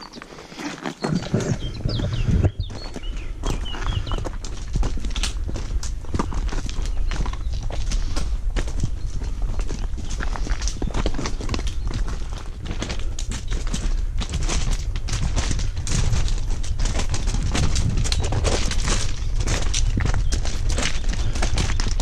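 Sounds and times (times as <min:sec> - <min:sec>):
footsteps on stony trail: 0:00.0 - 0:22.0.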